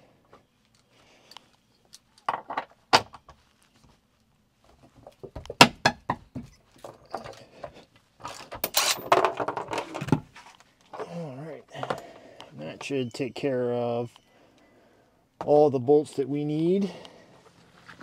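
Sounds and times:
metal clinks and knocks: 8.2s - 10.1s.

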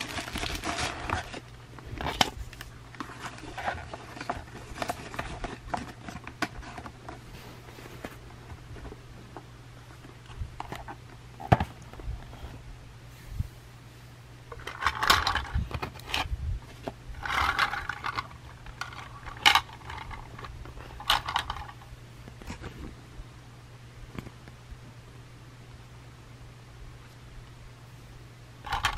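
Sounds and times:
scraping and rustling: 0.0s - 13.4s, 14.5s - 23.0s.

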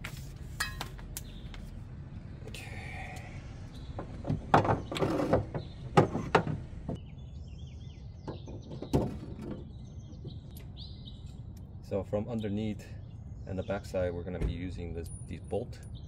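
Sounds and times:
small birds chirping: 1.1s - 16.0s
metal bracket scraping: 4.6s - 6.4s.

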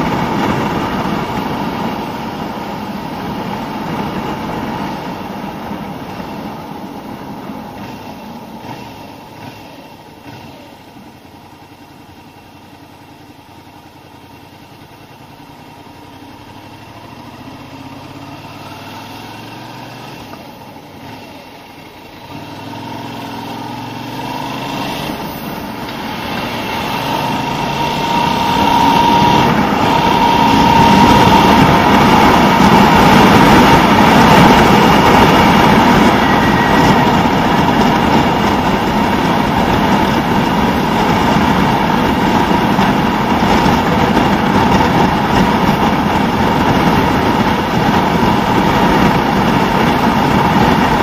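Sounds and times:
rushing wind: 0.0s - 12.2s, 15.8s - 51.0s
motorcycle engine accelerating: 0.0s - 51.0s.

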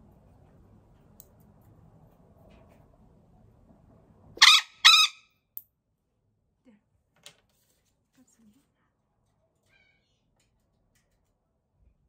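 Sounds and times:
parrot squawks: 4.4s - 5.4s.

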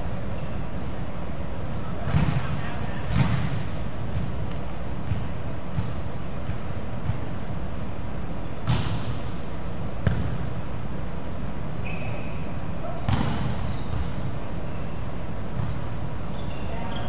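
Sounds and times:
volleyball impacts: 2.0s - 7.4s, 8.6s - 9.2s, 10.0s - 10.5s, 13.1s - 14.2s
short high squeak: 11.8s - 12.6s.

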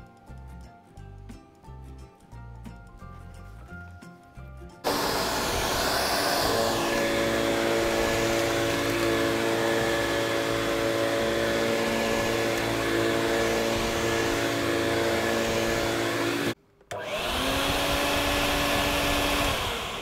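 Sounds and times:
vacuum cleaner running: 4.8s - 20.0s.

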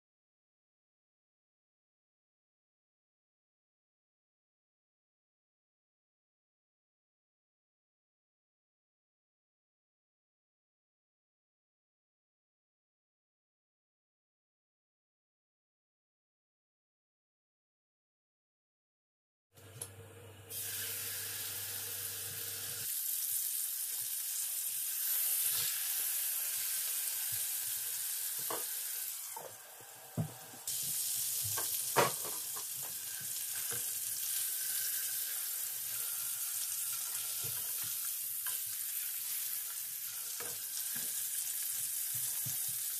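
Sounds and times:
chicken frying in hot oil: 20.5s - 42.9s.

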